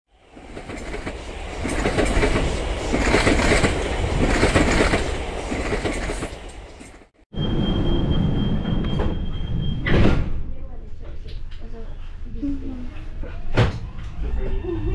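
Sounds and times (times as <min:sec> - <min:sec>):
steady high whine: 0:00.1 - 0:08.6
electric train running on rails: 0:00.1 - 0:09.4
train running through tunnel: 0:00.1 - 0:09.9.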